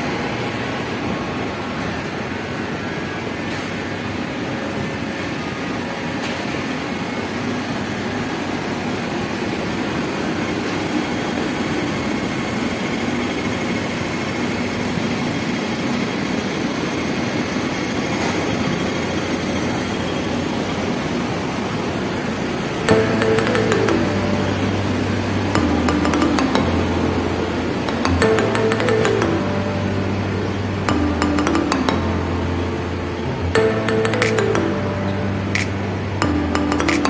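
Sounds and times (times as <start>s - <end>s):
city street hum and rumble: 0.0s - 37.0s
clicks: 35.5s - 37.0s.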